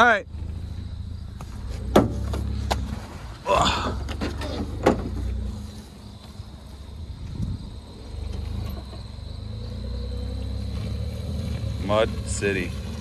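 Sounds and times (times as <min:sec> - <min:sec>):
pickup truck engine running: 0:00.2 - 0:13.0
knocks and clanks from towed frame: 0:01.5 - 0:05.8, 0:08.1 - 0:09.2.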